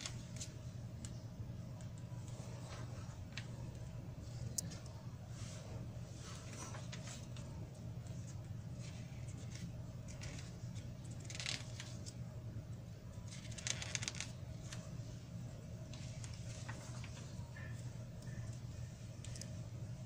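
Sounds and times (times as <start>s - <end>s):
low steady hum: 0.0s - 20.0s
magazine pages rustling: 6.1s - 7.5s, 8.1s - 12.2s, 13.3s - 15.0s, 15.9s - 18.4s.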